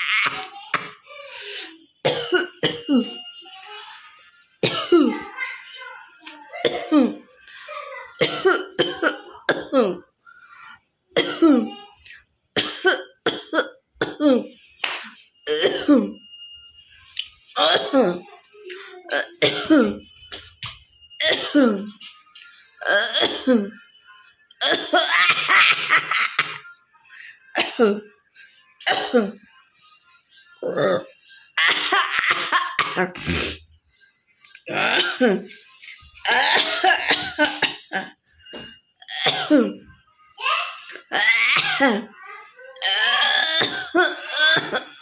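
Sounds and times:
woman coughing: 0.0 - 3.3, 4.6 - 5.3, 6.5 - 7.6, 8.2 - 10.1, 11.2 - 11.8, 12.6 - 14.6, 15.4 - 16.2, 17.6 - 20.4, 21.2 - 22.0, 22.8 - 23.8, 24.6 - 26.7, 27.5 - 28.1, 28.8 - 29.4, 30.6 - 33.7, 34.7 - 35.6, 36.2 - 39.9, 40.9 - 42.1, 42.8 - 45.0.

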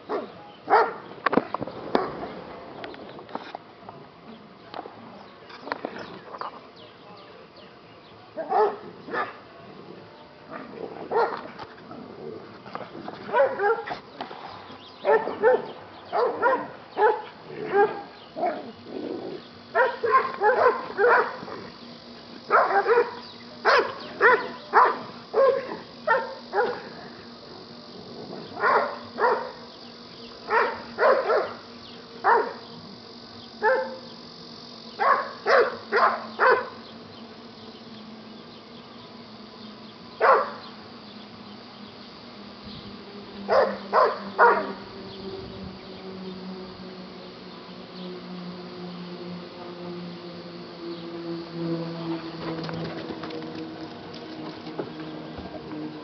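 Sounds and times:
dog barking: 0.1 - 1.0, 8.4 - 9.4, 10.5 - 11.4, 13.3 - 14.0, 15.0 - 18.1, 19.8 - 21.4, 22.5 - 26.8, 28.6 - 29.6, 30.5 - 31.6, 32.2 - 32.6, 33.6 - 34.0, 35.0 - 36.8, 40.2 - 40.6, 43.5 - 44.8.

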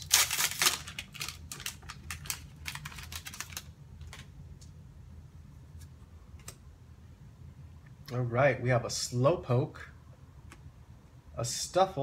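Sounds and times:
foil wrapper crinkling: 0.0 - 4.3.

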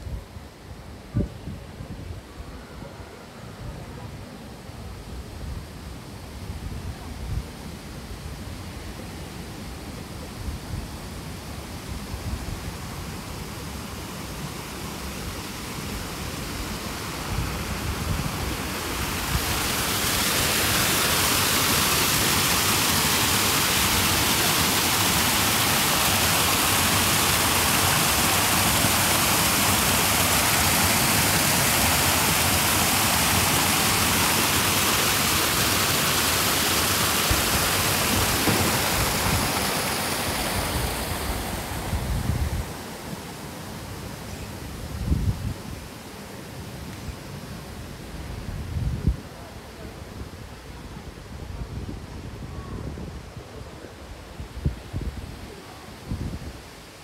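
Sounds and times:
waterfall splashing over rocks: 14.0 - 44.9.

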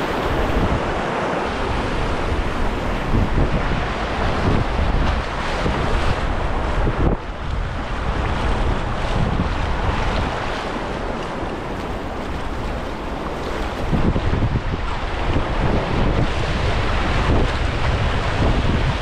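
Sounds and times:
river current splashing: 0.0 - 19.0
wind on microphone: 0.0 - 19.0.

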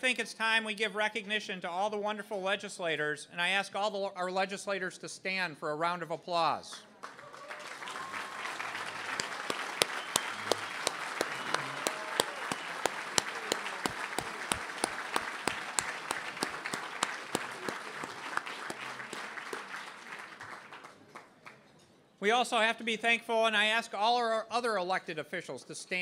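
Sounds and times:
audience applauding: 7.0 - 21.6.

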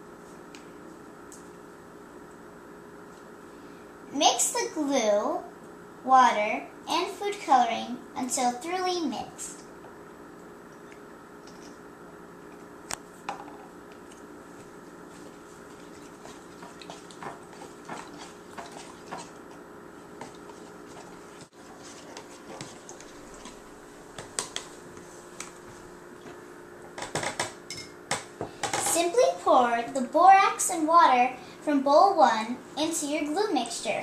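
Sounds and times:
steady background hum: 0.0 - 34.0
plastic spoon stirring glue: 14.0 - 25.7.

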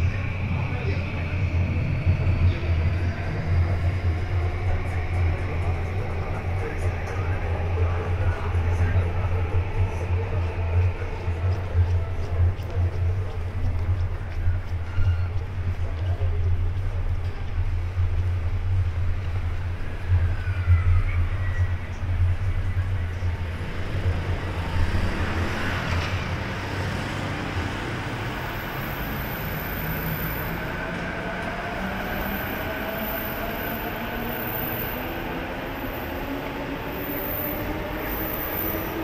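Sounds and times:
train rumbling: 0.0 - 39.0
cars passing: 23.2 - 33.8.

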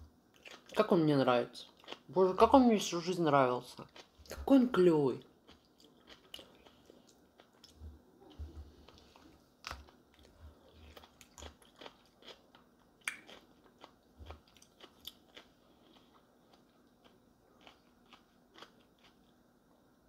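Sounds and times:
person chewing: 0.3 - 0.8, 1.6 - 2.1, 3.8 - 4.5, 5.4 - 19.4.

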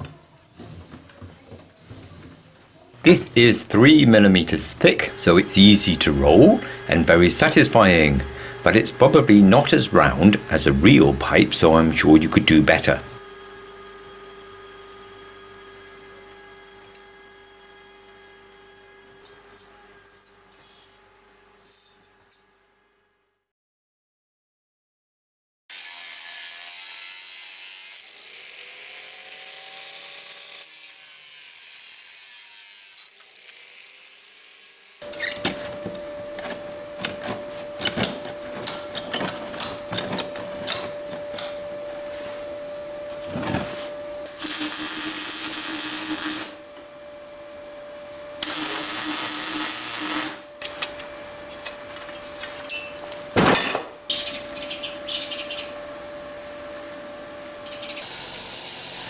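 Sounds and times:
steady hum: 2.8 - 21.0, 35.0 - 59.0
angle grinder on steel: 3.0 - 13.2, 25.7 - 35.4, 44.3 - 46.6, 48.4 - 51.0
power tool bursts: 43.3 - 46.6, 48.4 - 51.0, 57.9 - 59.0.

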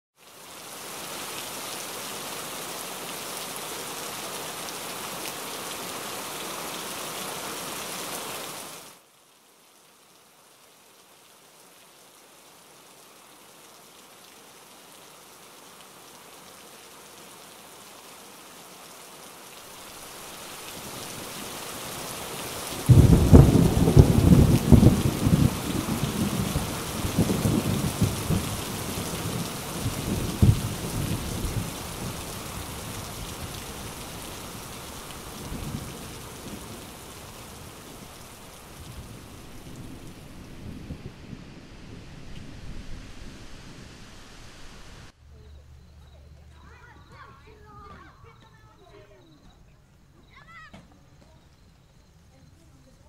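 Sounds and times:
steady rain: 0.2 - 53.0
deep rumble of thunder: 22.8 - 37.1, 38.7 - 44.4.

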